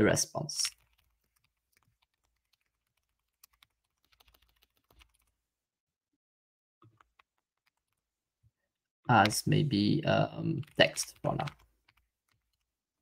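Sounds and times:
keyboard typing: 0.6 - 5.3, 6.8 - 8.1, 10.3 - 13.0.

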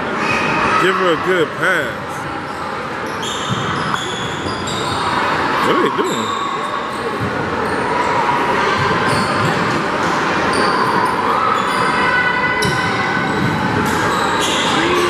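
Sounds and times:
hubbub of spectator voices: 0.0 - 3.0, 5.0 - 15.0.

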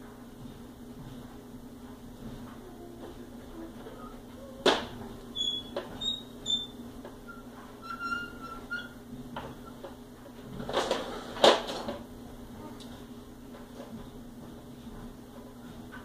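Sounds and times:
short high squeaks: 5.4 - 9.0.

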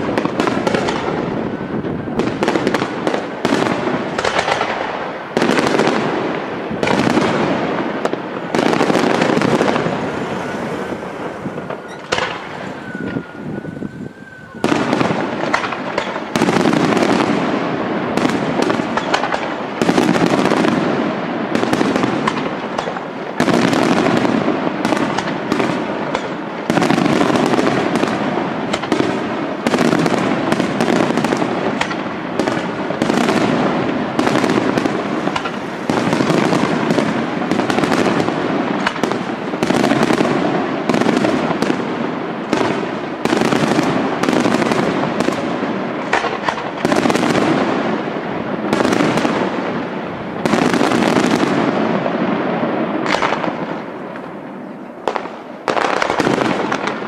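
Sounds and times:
fireworks bangs: 0.0 - 57.0.

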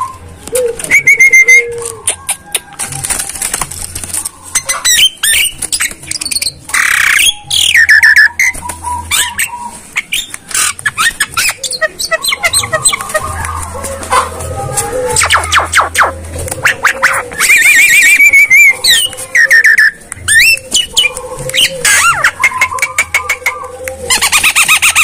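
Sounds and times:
myna calling: 0.0 - 25.0
sharp clicks: 10.0 - 11.7.

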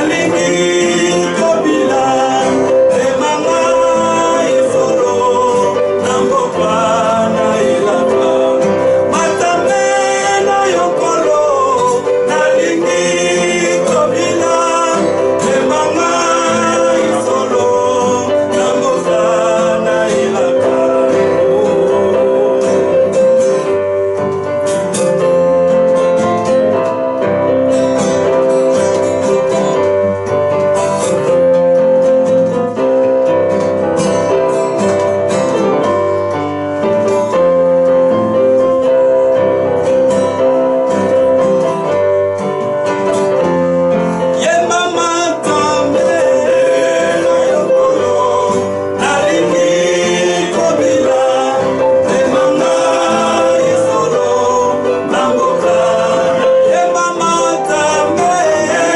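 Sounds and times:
man singing gospel song: 0.0 - 23.5, 44.2 - 58.9
strummed acoustic guitar: 0.0 - 58.9.

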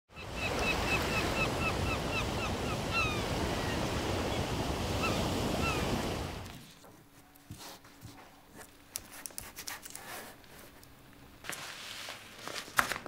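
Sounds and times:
ocean surf washing: 0.1 - 6.6.

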